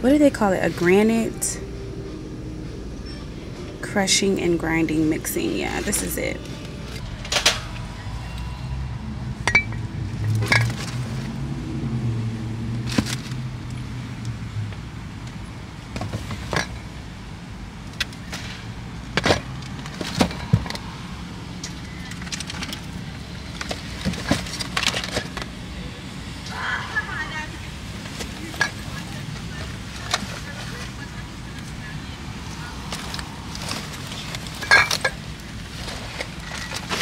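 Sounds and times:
low steady hum: 0.0s - 37.0s
shopping bags being handled: 4.2s - 8.4s, 21.6s - 25.5s, 27.9s - 37.0s.

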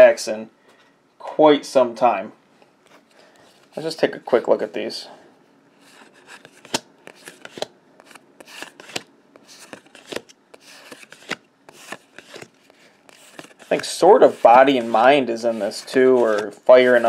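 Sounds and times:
cards sliding rustles: 5.8s - 17.0s
cards flicking: 6.4s - 12.5s.

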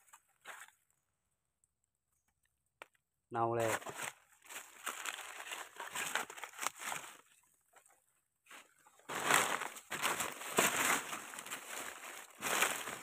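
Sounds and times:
dry leaves rustling and crunching: 3.6s - 7.4s, 8.5s - 13.0s.

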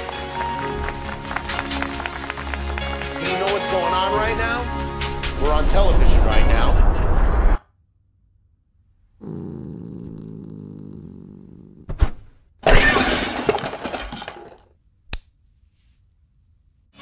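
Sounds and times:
dishes crashing and clattering: 12.6s - 14.6s.

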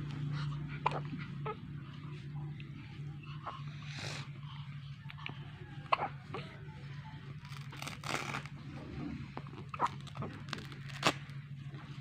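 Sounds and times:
steady low hum: 0.0s - 12.0s
soft rustling and crinkling: 6.4s - 12.0s.

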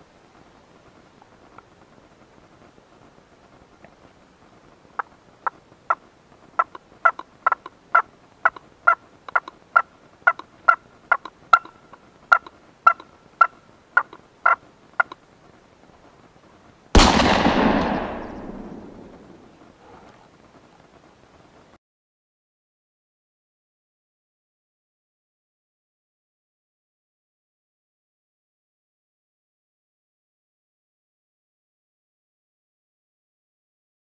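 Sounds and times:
wild turkey clucks: 5.0s - 6.0s, 6.6s - 15.2s
gunshot with echo: 17.0s - 19.5s.

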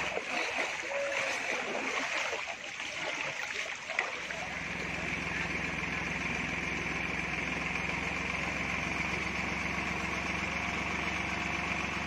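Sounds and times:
vehicle engine running steadily: 4.2s - 12.0s.

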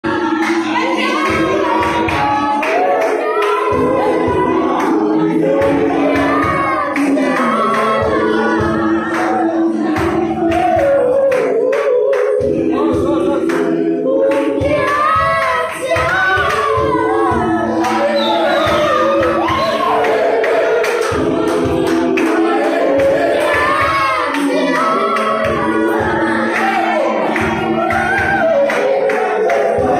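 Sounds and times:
choir singing a cappella: 0.0s - 29.9s
hand claps: 9.1s - 12.5s, 14.3s - 14.5s, 20.0s - 23.6s, 26.6s - 29.9s.

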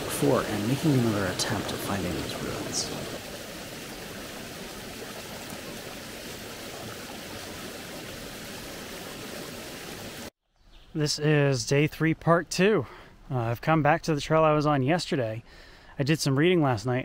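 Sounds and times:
stream rushing over rocks: 0.0s - 10.3s.

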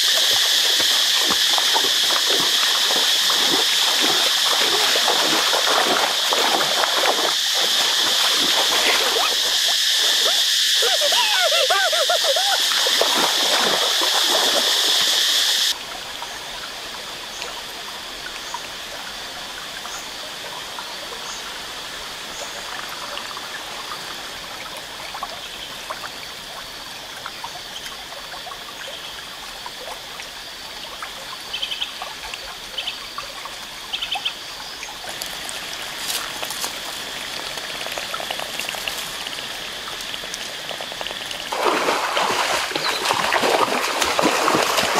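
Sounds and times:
loud water noise: 0.0s - 19.7s, 35.0s - 44.9s
stream water trickling: 0.0s - 44.9s
person shouting: 10.8s - 12.7s.

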